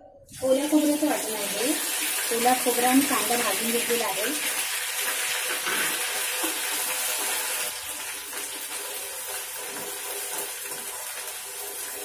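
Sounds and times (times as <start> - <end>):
masala sizzling in hot oil: 0.3 - 12.0.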